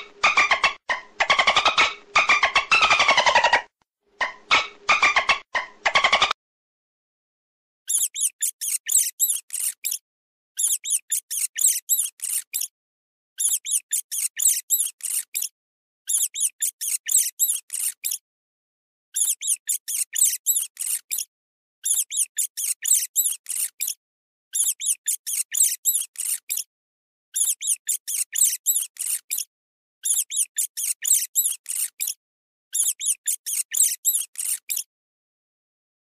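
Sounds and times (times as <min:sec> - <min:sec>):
small animal squeaking: 0:00.0 - 0:06.4, 0:07.9 - 0:10.0, 0:10.6 - 0:12.7, 0:13.4 - 0:18.2, 0:19.1 - 0:26.7, 0:27.3 - 0:34.9.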